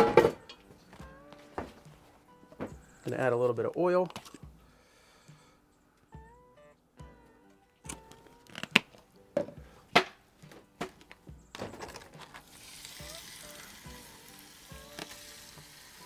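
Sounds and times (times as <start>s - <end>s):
chicken sizzling in hot oil: 12.4s - 16.0s.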